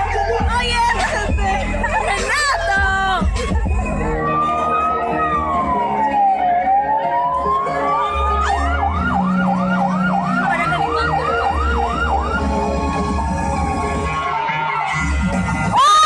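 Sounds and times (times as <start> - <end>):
held synth notes: 0.0 - 16.0
pulsing bass: 0.0 - 16.0
siren sound effect: 3.8 - 16.0.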